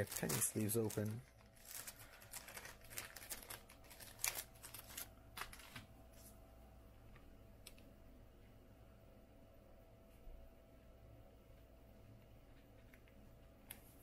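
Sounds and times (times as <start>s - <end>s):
plastic sleeves rustling and clicking: 0.0s - 5.9s.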